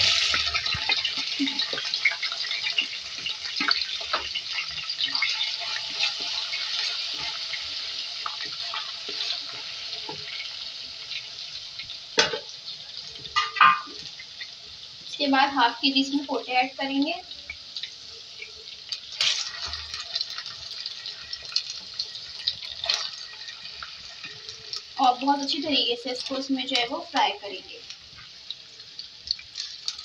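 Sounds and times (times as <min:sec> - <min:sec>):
oil crackling: 0:00.0 - 0:10.5, 0:17.4 - 0:30.0
spoon scraping pan: 0:00.0 - 0:10.5
paste sizzling in hot oil: 0:00.0 - 0:30.0.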